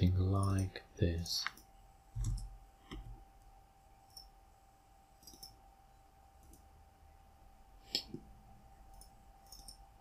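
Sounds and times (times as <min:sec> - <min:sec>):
faint steady hum: 0:00.0 - 0:10.0
computer mouse clicking: 0:01.4 - 0:03.2, 0:04.1 - 0:04.3, 0:05.2 - 0:05.6, 0:06.4 - 0:06.7, 0:08.9 - 0:09.8.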